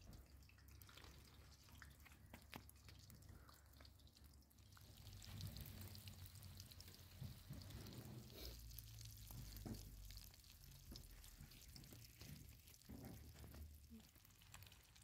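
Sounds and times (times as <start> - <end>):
oil popping and crackling: 0.0 - 15.0
pastries sizzling in hot oil: 4.6 - 15.0.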